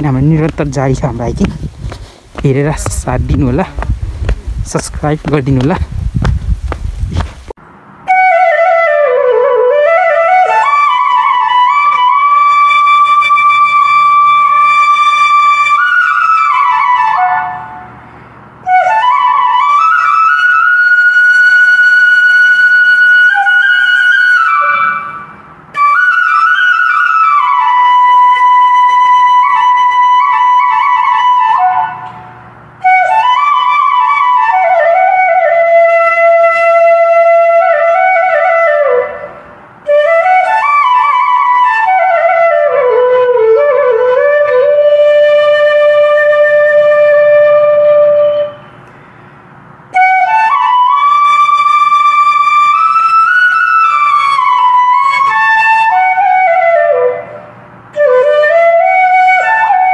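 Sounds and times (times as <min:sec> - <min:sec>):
slow solo flute melody: 0:08.1 - 0:49.0, 0:49.9 - 0:59.9.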